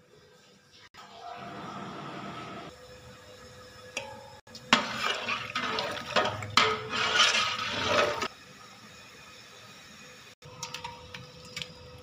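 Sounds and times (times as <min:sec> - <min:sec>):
liquid sloshing: 0:04.7 - 0:08.3
spoon scraping metal pot: 0:04.7 - 0:08.3.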